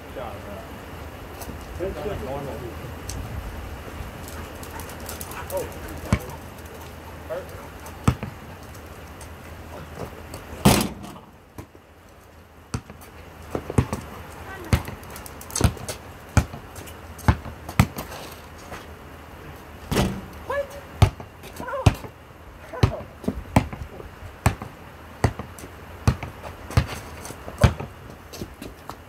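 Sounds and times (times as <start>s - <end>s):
basketball bouncing: 6.0s - 6.4s, 7.9s - 8.5s, 12.7s - 18.1s, 21.0s - 22.1s, 22.8s - 28.5s.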